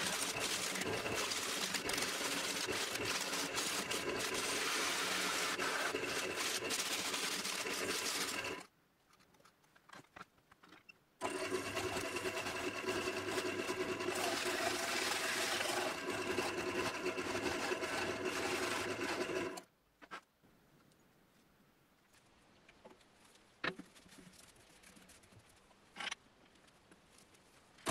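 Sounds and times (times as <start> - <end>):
hiss of wood shavings: 0.0 - 8.6
wood lathe humming: 0.0 - 8.6, 11.2 - 19.6.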